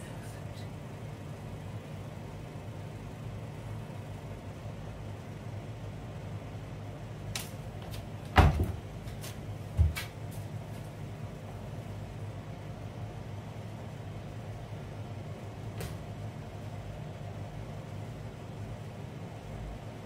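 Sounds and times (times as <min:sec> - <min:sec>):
low steady hum: 0:00.0 - 0:20.0
dull thumps of steps: 0:07.8 - 0:10.2.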